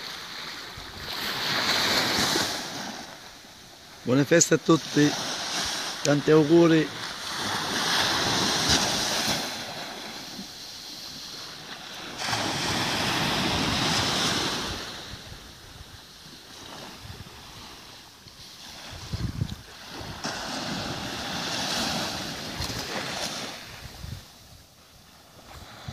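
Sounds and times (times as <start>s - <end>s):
waves washing up beach: 0.0s - 25.9s
wind on microphone: 12.4s - 17.8s, 18.7s - 24.7s, 25.3s - 25.9s.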